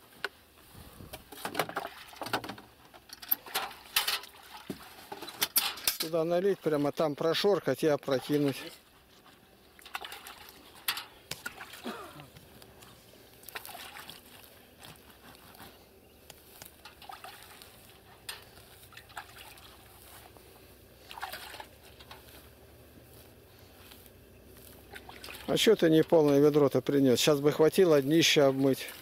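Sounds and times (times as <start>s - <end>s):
water splashing in rubber boat: 1.3s - 2.8s, 3.4s - 5.3s, 8.0s - 12.4s, 13.4s - 15.2s, 16.9s - 20.4s, 21.0s - 22.0s, 24.8s - 26.4s, 28.1s - 29.0s
water trickling: 1.7s - 5.4s, 6.2s - 12.6s, 13.3s - 14.8s, 16.6s - 20.4s, 21.0s - 22.3s, 24.8s - 26.6s.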